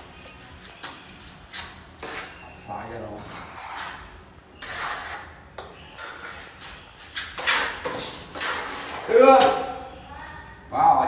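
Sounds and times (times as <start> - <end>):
hand tool scraping mortar: 4.6 - 5.3, 6.0 - 9.2.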